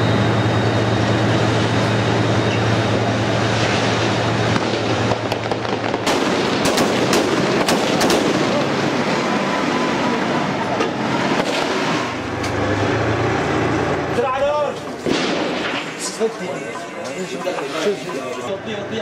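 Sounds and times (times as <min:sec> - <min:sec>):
tank engine humming: 0:00.0 - 0:19.0
gunfire cracks: 0:04.6 - 0:08.6, 0:15.0 - 0:16.0.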